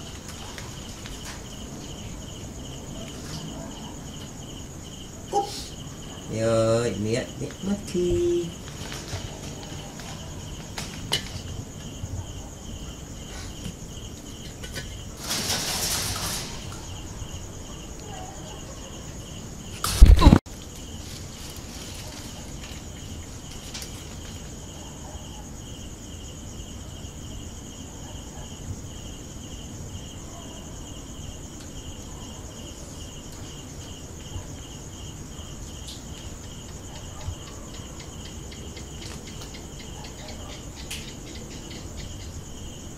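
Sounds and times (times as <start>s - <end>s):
crickets chirping: 0.0s - 42.9s
rustling hiss: 12.9s - 18.1s, 19.4s - 24.7s.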